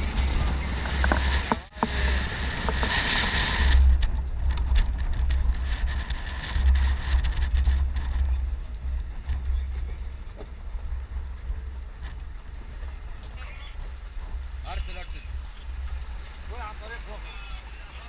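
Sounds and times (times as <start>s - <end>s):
vehicle running and road noise: 0.0s - 18.0s
wind rumbling on microphone: 0.0s - 18.0s.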